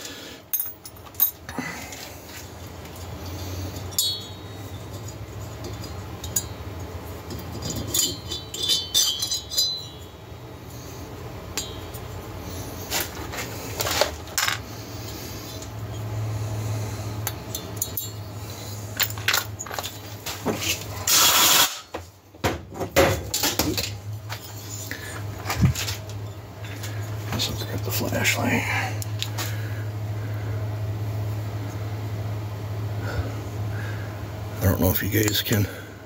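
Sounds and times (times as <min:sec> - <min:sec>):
low steady hum: 0:00.0 - 0:36.0
metal clinks and rattles: 0:00.5 - 0:10.4, 0:17.4 - 0:20.8.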